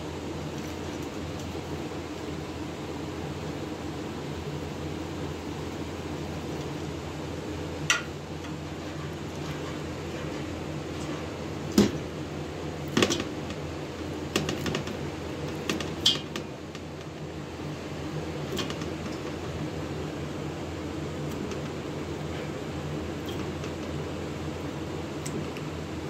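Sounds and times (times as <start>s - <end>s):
steady machine hum: 0.0s - 26.0s.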